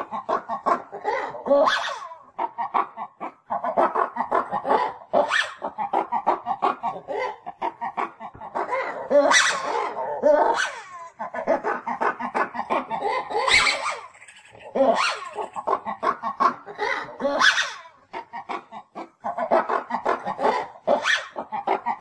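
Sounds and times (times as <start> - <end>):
lemurs shrill cries: 0.0 - 2.3, 12.8 - 18.3
lemurs yipping and grunting: 0.0 - 22.0.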